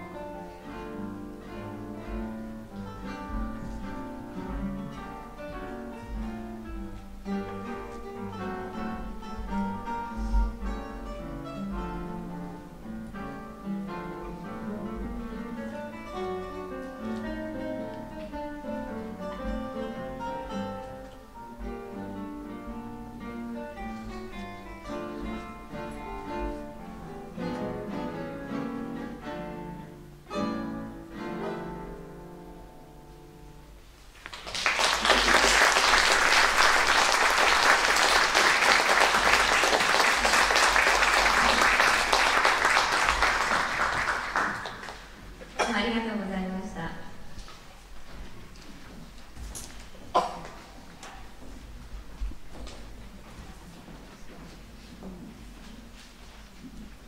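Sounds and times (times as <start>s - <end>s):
classical guitars playing: 0.0s - 57.0s
audience applause: 34.2s - 45.2s.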